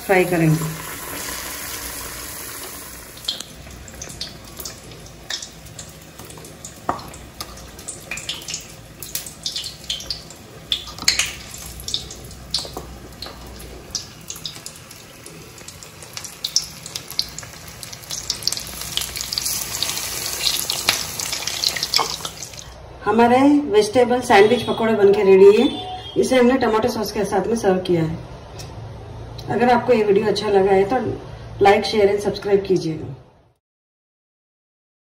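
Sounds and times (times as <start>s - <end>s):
food deep-frying in hot oil: 0.0s - 22.8s.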